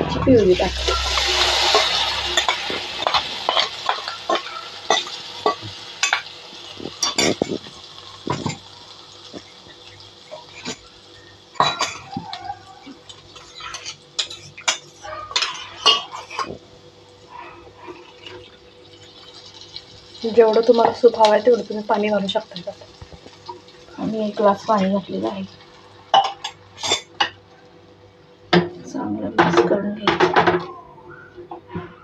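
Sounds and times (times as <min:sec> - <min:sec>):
faint sizzle from pan: 0:00.3 - 0:27.6
metal utensils clinking on pan: 0:00.8 - 0:06.3, 0:06.9 - 0:08.7, 0:11.6 - 0:16.6, 0:26.2 - 0:27.4.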